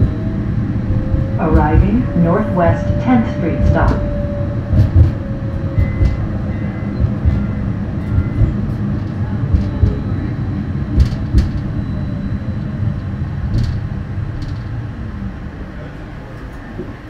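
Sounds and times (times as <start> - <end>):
streetcar rumbling on rails: 0.0 - 17.0
knocks and clicks: 4.7 - 5.2, 5.8 - 6.3, 11.0 - 11.7.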